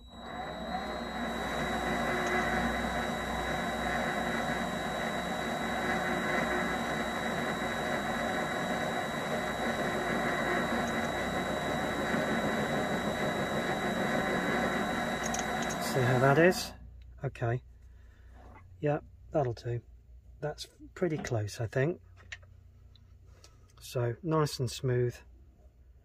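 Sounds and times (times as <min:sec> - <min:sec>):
lathe whirring with high whine: 0:00.0 - 0:16.8.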